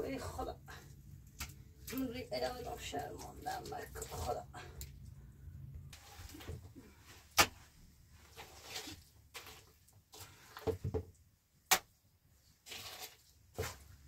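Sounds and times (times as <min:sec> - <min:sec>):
scraping and rustling handling: 0:05.9 - 0:11.0.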